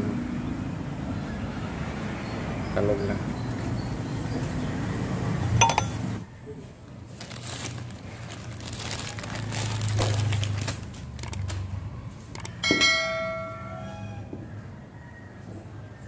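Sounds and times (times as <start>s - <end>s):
ringing metal clink: 5.6s - 6.0s, 12.6s - 13.8s
plastic bag crinkling: 7.1s - 11.7s.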